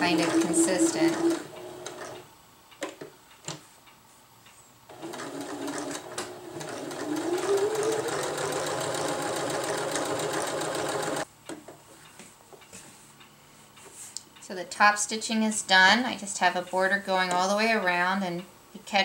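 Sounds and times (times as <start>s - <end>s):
sewing machine motor whining: 0.0s - 2.2s, 5.0s - 11.2s.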